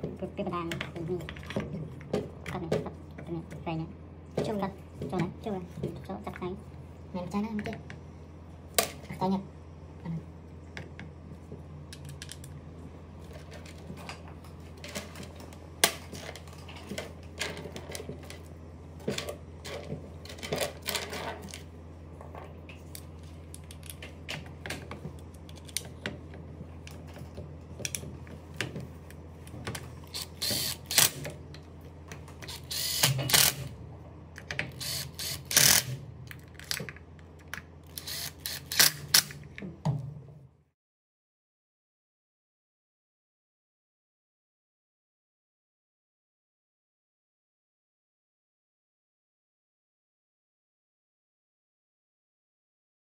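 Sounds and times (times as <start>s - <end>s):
steady low hum: 0.0s - 40.8s
cordless driver bursts: 30.2s - 31.2s, 32.5s - 33.6s, 34.8s - 36.0s, 37.9s - 39.2s.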